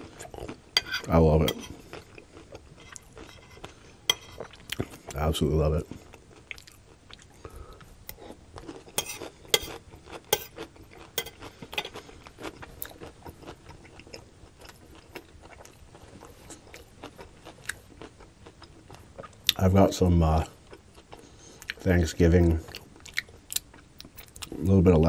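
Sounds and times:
close chewing crunches: 5.9s - 19.6s.

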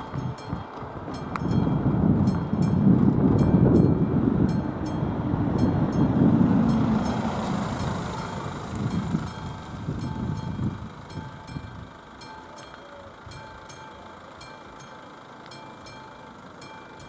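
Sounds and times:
cars rumbling over crossing: 0.0s - 17.0s
crossing warning bell ringing: 0.0s - 17.0s.

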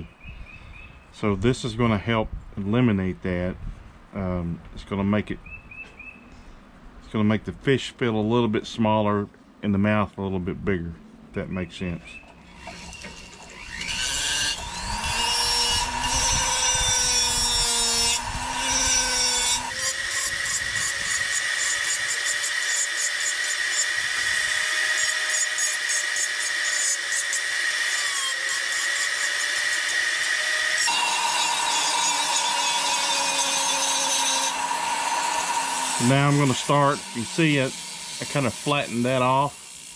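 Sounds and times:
rotary tool sanding wood: 12.6s - 39.9s.

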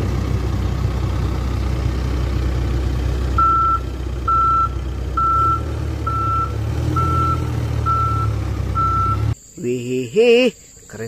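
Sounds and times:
diesel engine running: 0.0s - 9.4s
reversing alarm beeping: 3.4s - 9.4s.

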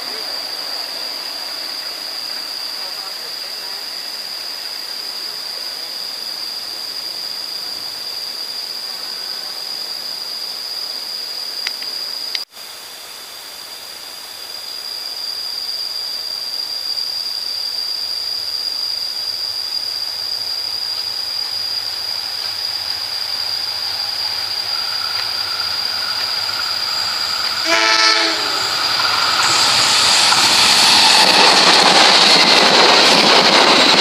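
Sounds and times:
insects droning: 0.0s - 34.0s
diesel train rumble: 20.1s - 34.0s.

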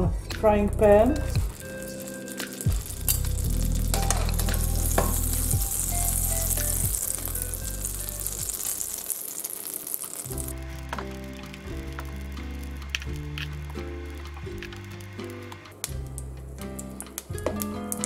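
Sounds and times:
butter sizzling in frying pan: 1.0s - 18.0s.

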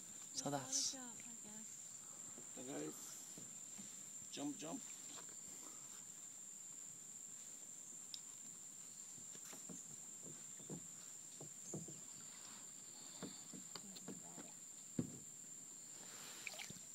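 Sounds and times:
insect drone: 0.0s - 16.9s
soft taps and knocks: 9.2s - 15.3s.

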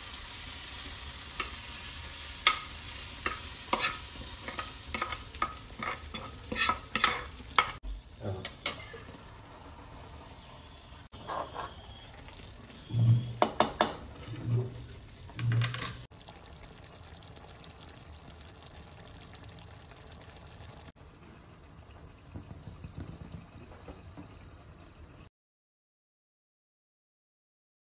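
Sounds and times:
utensils clinking on cookware: 2.4s - 7.8s, 8.4s - 9.1s, 13.0s - 16.1s.

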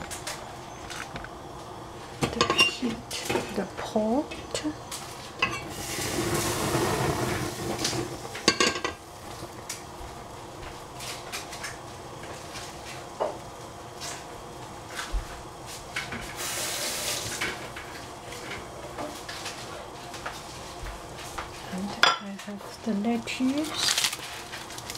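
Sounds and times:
pot heating hiss: 0.0s - 24.9s
pots and utensils clattering: 2.2s - 3.7s, 4.5s - 9.0s, 15.9s - 19.7s.

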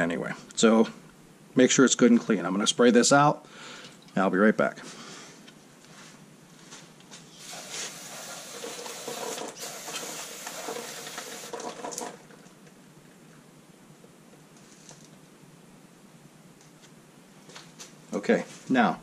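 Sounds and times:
aerosol spray hissing: 7.3s - 11.7s.

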